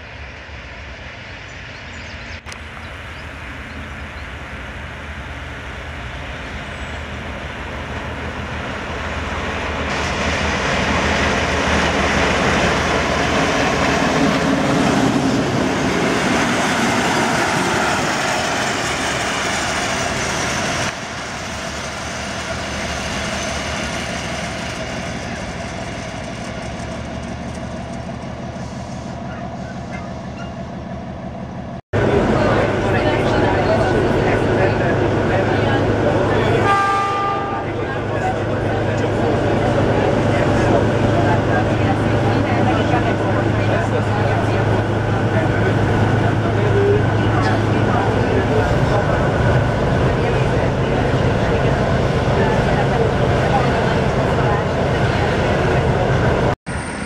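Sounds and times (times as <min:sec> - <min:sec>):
railbus diesel engine: 0:00.0 - 0:57.0.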